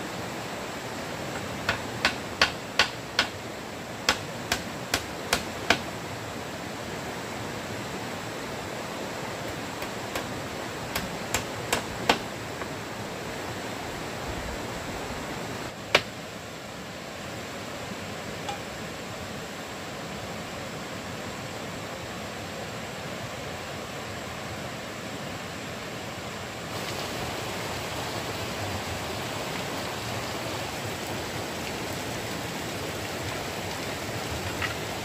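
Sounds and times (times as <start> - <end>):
light hammer strikes: 1.7 - 3.4.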